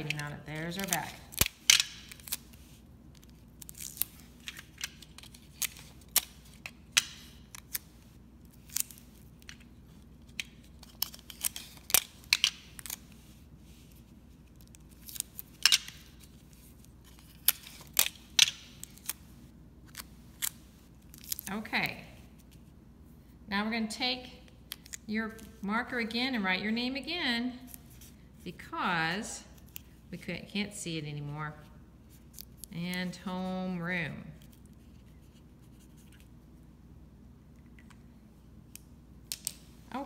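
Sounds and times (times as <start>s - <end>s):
tape clicks and snaps: 0.0s - 7.9s, 8.5s - 13.0s, 16.8s - 19.2s, 38.7s - 39.7s.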